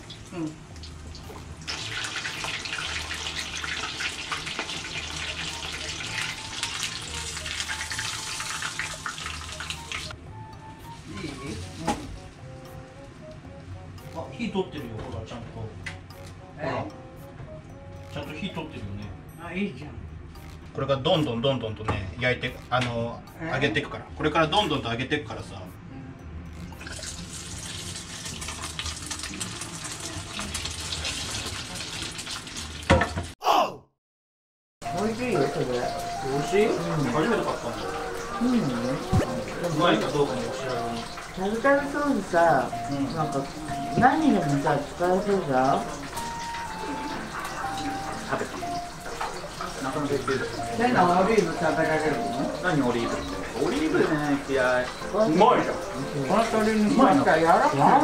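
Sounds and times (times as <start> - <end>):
chicken deep-frying in oil: 0.0 - 10.2, 26.8 - 33.4, 34.8 - 58.0.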